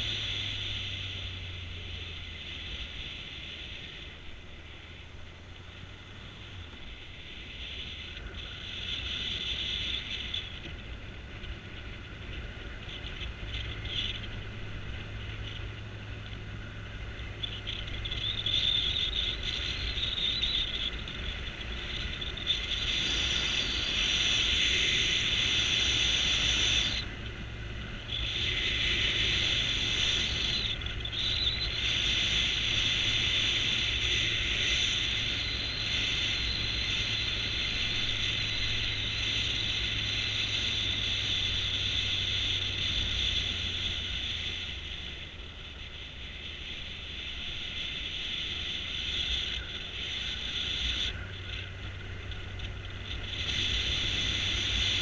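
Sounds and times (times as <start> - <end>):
motorcycle engine hum: 0.0 - 55.0
loud high-pitched hiss: 18.8 - 55.0.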